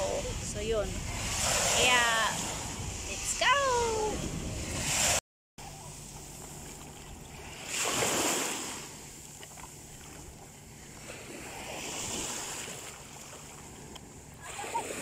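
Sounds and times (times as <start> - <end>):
wind on microphone: 0.0 - 5.2
small waves washing ashore: 0.0 - 15.0
surf swells: 0.0 - 15.0.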